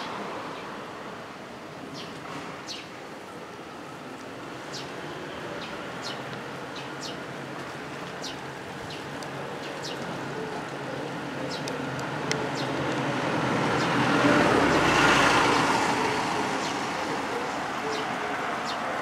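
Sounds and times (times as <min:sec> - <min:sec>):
road traffic noise: 0:00.0 - 0:19.0
vehicle passing close: 0:11.9 - 0:18.5.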